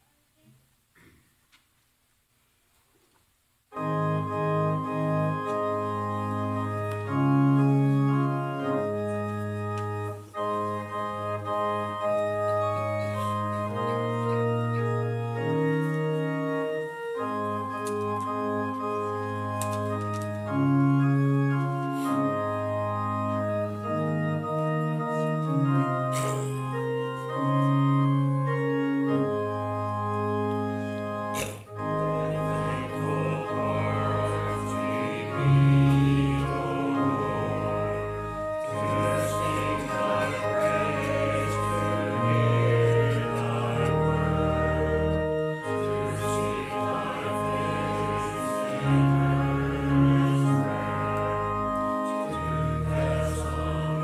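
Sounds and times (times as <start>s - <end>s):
church organ chords: 3.7s - 54.0s.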